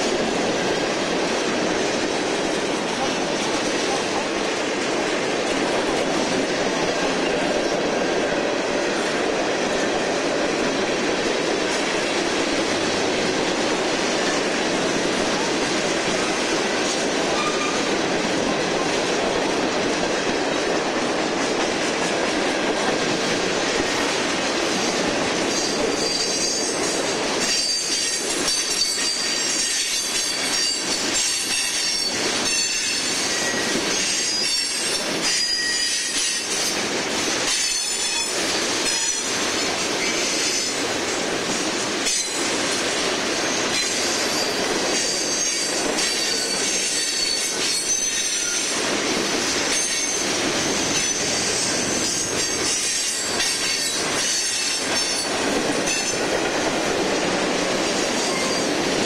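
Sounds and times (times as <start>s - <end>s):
steel wheels rumbling on rail: 0.0s - 59.0s
high-pitched wheel squeal: 31.4s - 36.4s.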